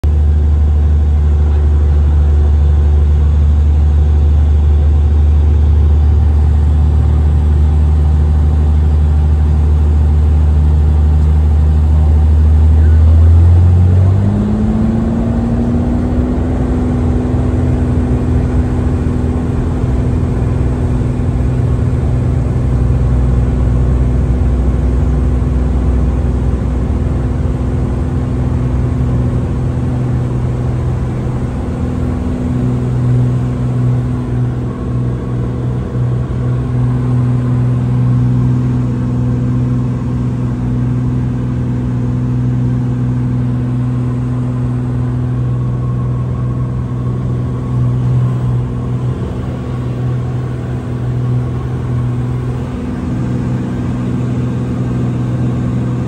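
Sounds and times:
aircraft engine and propeller drone: 0.0 - 56.0.

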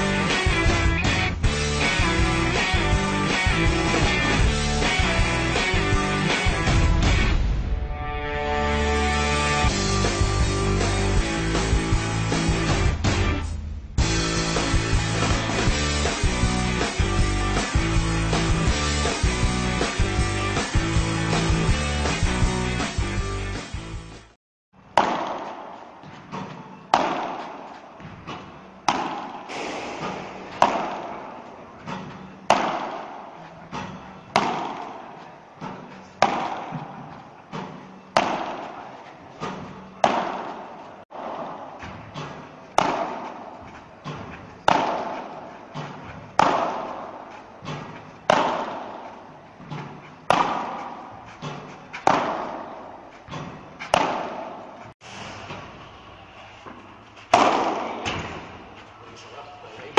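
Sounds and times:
racket hitting ball: 14.6 - 16.8, 24.9 - 55.8, 56.6 - 58.7.

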